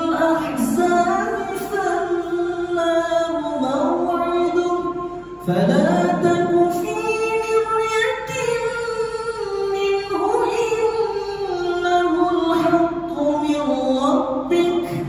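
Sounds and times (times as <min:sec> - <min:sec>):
man reciting melodically: 0:00.0 - 0:08.7.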